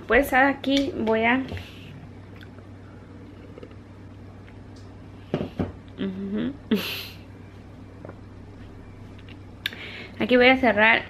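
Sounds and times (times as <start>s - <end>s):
steady low hum: 0.0s - 11.0s
woman humming mm: 5.9s - 7.2s.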